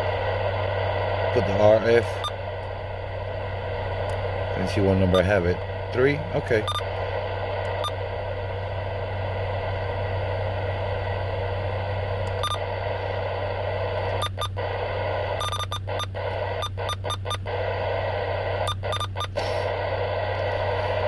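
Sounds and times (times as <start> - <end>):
low hum: 0.0 - 21.0
radio static hiss: 0.0 - 21.0
short radio blips: 12.1 - 21.0.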